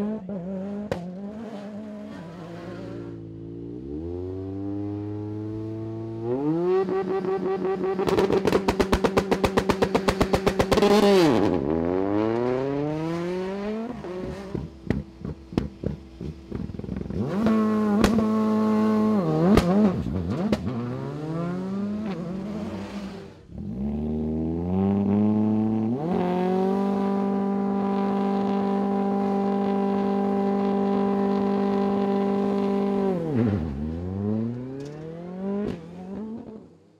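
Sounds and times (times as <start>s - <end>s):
rally car engine accelerating: 0.0s - 36.8s.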